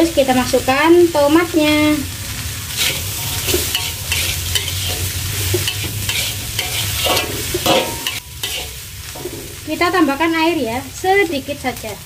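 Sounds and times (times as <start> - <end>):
food sizzling: 0.0 - 12.0
metal spatula scraping wok: 2.6 - 9.6.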